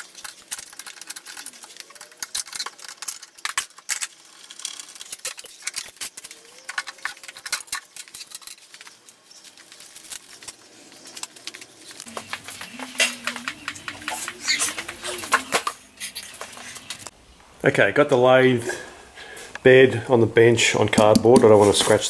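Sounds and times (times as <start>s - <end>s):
small metal parts clinking: 0.0s - 12.1s
hands clicking and tapping on metal: 20.9s - 22.0s.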